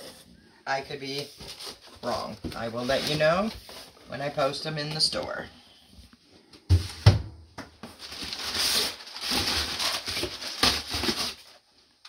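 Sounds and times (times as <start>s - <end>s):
packaging rustling and crinkling: 1.2s - 4.1s, 7.8s - 12.0s.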